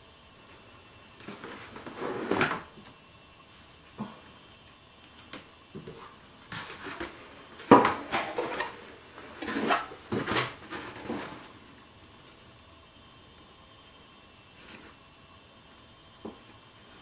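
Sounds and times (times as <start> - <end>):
foam parts rustling and scraping: 1.2 - 2.7, 5.8 - 11.6.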